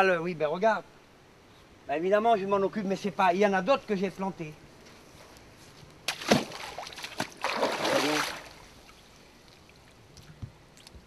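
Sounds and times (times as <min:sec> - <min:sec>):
boots splashing in water: 0:06.1 - 0:08.6
stream trickling: 0:06.1 - 0:11.0
water sloshing: 0:06.1 - 0:11.0.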